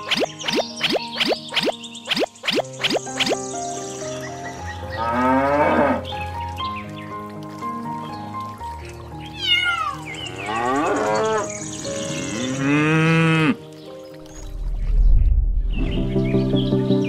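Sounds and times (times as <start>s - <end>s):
light background music: 0.0s - 17.0s
cow mooing: 5.0s - 6.1s, 10.3s - 13.6s
cat meowing: 9.3s - 10.1s.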